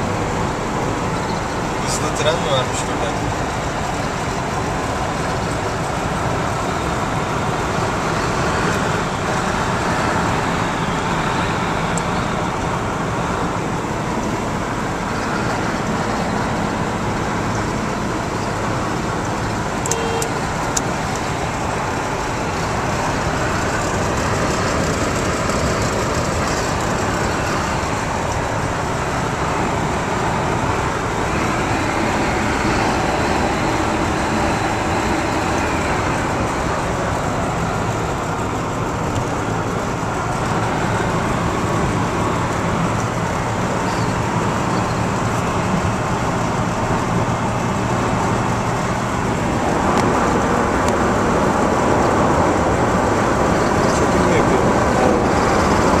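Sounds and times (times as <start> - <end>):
car engine drone in cabin: 0.0 - 56.0
short beep: 19.9 - 20.4.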